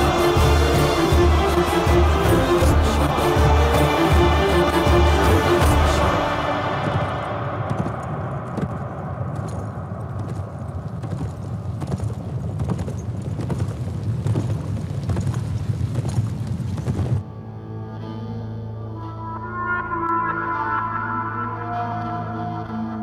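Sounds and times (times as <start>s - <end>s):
horses hoofbeats galloping: 0.0s - 17.2s.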